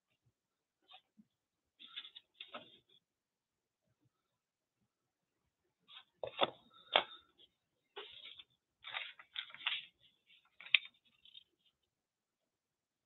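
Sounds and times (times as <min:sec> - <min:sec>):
paper rustling: 0:01.8 - 0:03.0, 0:08.0 - 0:11.8.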